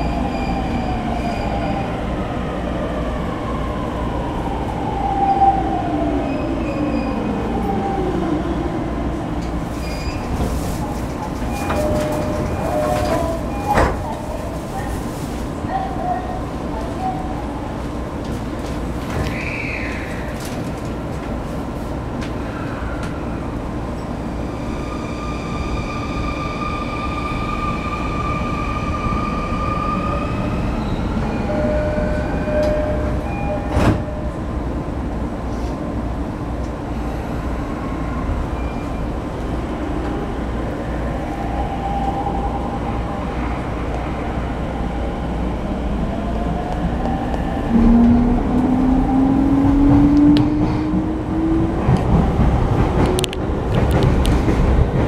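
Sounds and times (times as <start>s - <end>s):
train interior rumble: 0.0s - 55.0s
train doors shutting knock: 32.2s - 34.4s.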